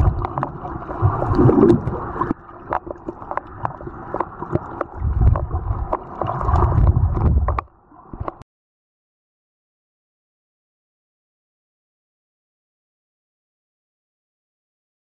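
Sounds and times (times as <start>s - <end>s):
muffled underwater water sloshing: 0.0s - 8.4s.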